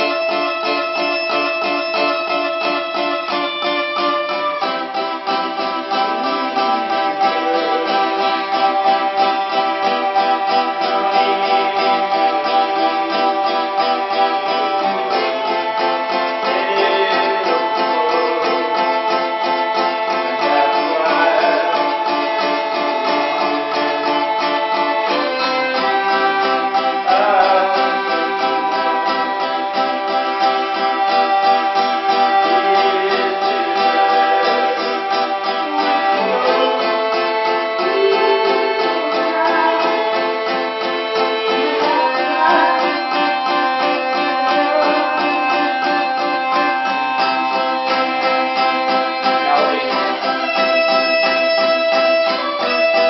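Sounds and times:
hurdy-gurdy: 0.0s - 53.0s
strummed acoustic guitar: 0.0s - 53.0s.

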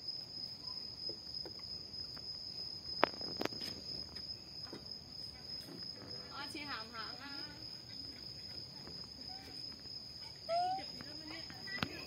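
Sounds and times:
insects trilling: 0.0s - 12.0s.

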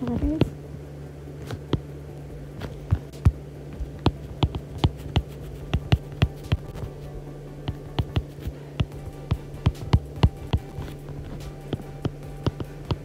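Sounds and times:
steady low hum: 0.0s - 13.0s
stylus tapping on glass screen: 2.9s - 6.9s, 7.7s - 13.0s.

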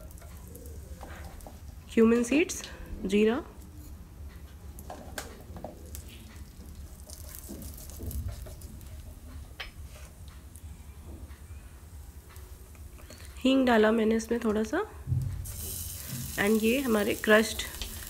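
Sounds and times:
seeds frying in hot oil: 4.8s - 9.1s, 15.4s - 18.0s
wooden spatula stirring: 6.4s - 9.1s.

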